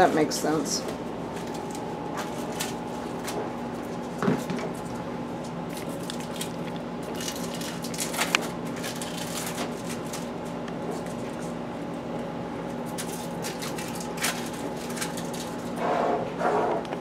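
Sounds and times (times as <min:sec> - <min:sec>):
steady low hum: 0:00.0 - 0:17.0
plastic wrappers crinkling: 0:05.7 - 0:10.3, 0:12.9 - 0:15.8.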